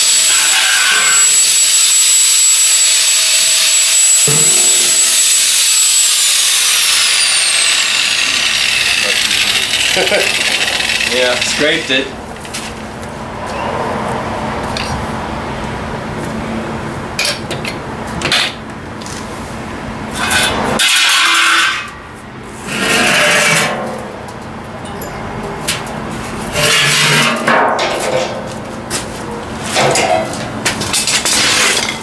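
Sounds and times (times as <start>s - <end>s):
steady hum: 0.0s - 24.8s
metal drum being scraped: 4.2s - 5.6s, 20.1s - 24.2s, 26.2s - 28.5s.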